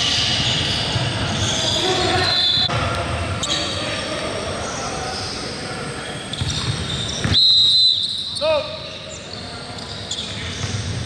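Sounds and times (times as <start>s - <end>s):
shoes squeaking on gym floor: 0.0s - 2.7s, 6.0s - 11.0s.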